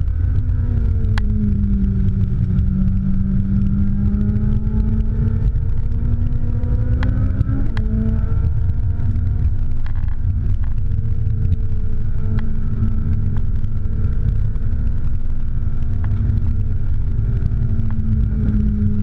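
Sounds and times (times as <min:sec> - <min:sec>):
car engine at speed: 0:00.0 - 0:19.0
road and wind rumble: 0:00.0 - 0:19.0.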